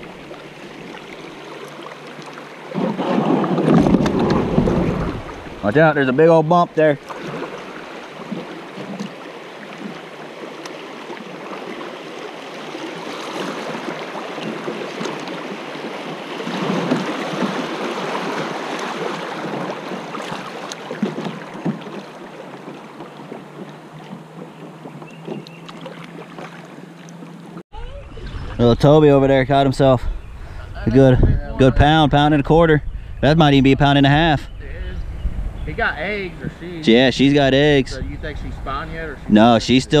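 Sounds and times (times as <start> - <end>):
creek water rushing and splashing: 0.0 - 31.1
sharp knocks on kayak: 2.7 - 5.4, 16.4 - 17.7, 18.3 - 26.5.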